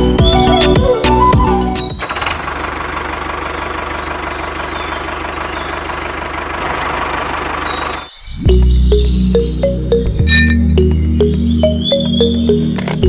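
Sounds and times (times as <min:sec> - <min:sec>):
tractor engine idling: 0:00.0 - 0:10.1.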